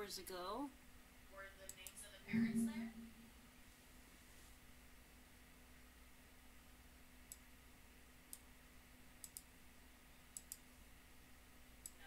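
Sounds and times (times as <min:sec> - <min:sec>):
faint steady hum: 0:00.0 - 0:12.0
computer mouse clicking: 0:08.3 - 0:08.5, 0:09.2 - 0:09.5, 0:10.3 - 0:10.7.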